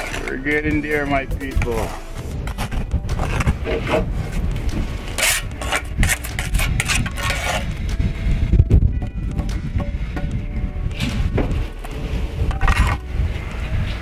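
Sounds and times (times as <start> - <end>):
trowel scraping mortar on stone: 0.0 - 0.4, 5.1 - 7.8.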